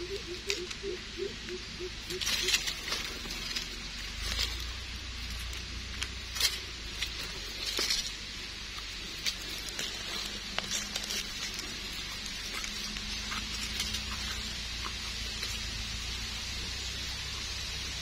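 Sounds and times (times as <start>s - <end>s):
dry leaf litter crackling: 0.0s - 18.0s.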